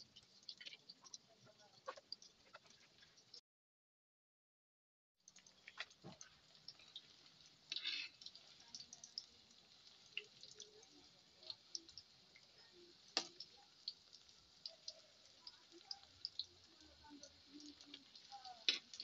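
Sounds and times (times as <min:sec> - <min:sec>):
oil crackling and popping: 0:00.0 - 0:03.4, 0:05.2 - 0:19.0
metal spatula scraping a pan: 0:07.7 - 0:08.5, 0:18.6 - 0:19.0.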